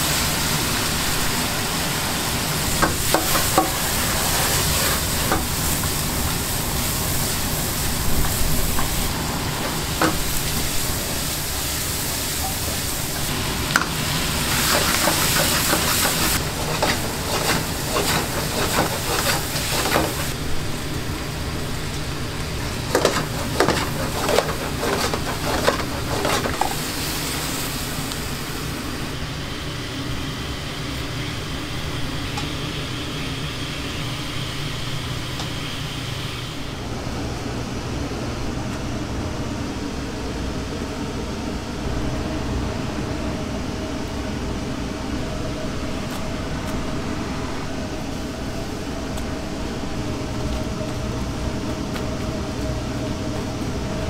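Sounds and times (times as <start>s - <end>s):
food sizzling in a pan: 0.0s - 29.2s
metal utensils clinking and scraping: 14.6s - 20.3s, 22.9s - 26.8s.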